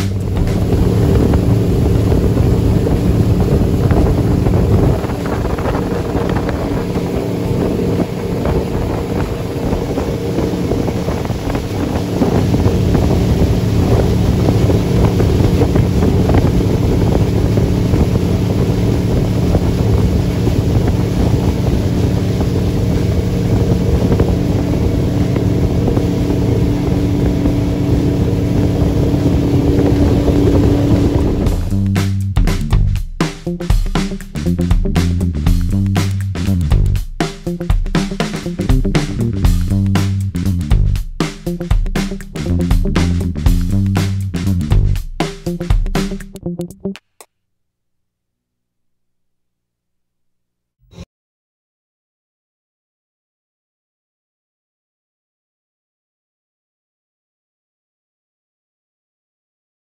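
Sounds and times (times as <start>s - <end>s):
motorboat engine running: 0.0s - 47.0s
wind on microphone: 0.1s - 31.8s.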